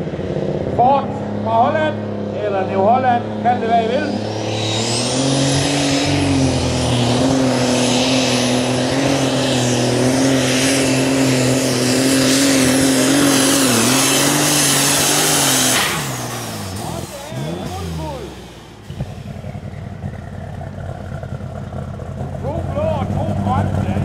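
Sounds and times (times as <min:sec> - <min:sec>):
tractor engine at full throttle: 0:00.0 - 0:24.0
high turbo whistle: 0:10.5 - 0:20.6.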